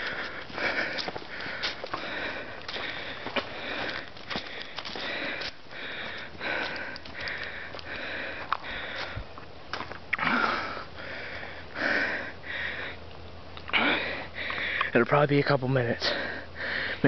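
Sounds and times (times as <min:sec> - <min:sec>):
person sniffing and breathing hard: 0:00.0 - 0:09.2, 0:10.2 - 0:13.0, 0:13.7 - 0:14.9.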